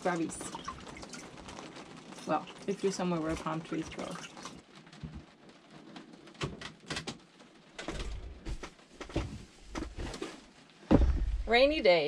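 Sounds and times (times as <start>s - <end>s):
low thuds: 7.8s - 10.2s, 10.8s - 11.9s.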